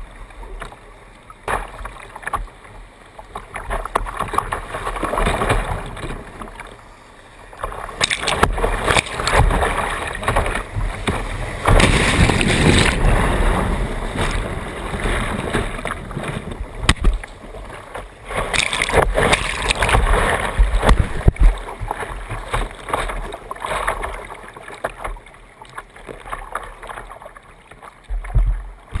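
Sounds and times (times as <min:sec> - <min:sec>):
calm water lapping: 0:00.0 - 0:29.0
rapids rushing and splashing: 0:07.4 - 0:29.0.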